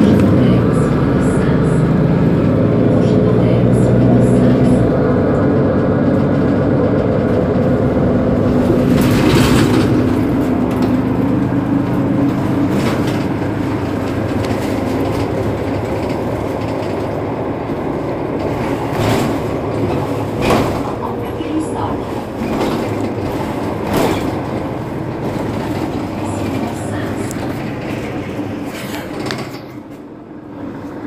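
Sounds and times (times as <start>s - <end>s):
bus engine idling: 0.0s - 31.0s.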